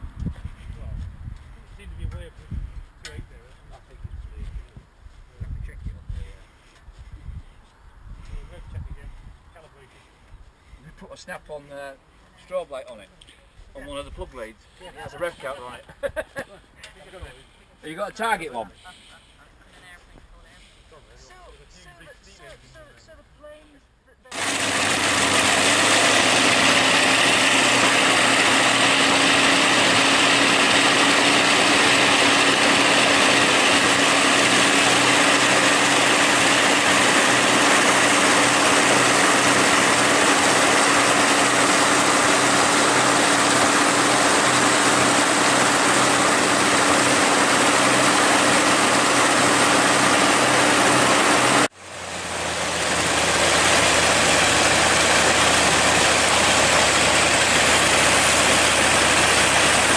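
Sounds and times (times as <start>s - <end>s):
radial aircraft engine running: 24.3s - 59.9s.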